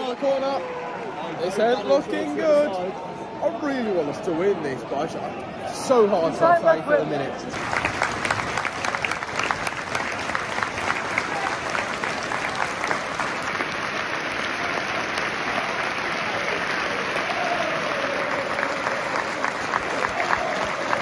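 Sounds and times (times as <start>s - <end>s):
stadium crowd clapping: 0.0s - 2.5s, 7.5s - 21.0s.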